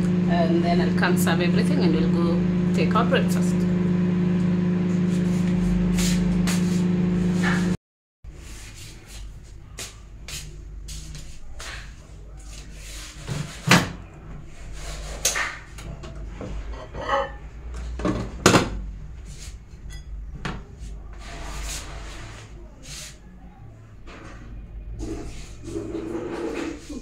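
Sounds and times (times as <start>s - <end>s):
cupboard doors and drawers closing: 13.2s - 14.0s.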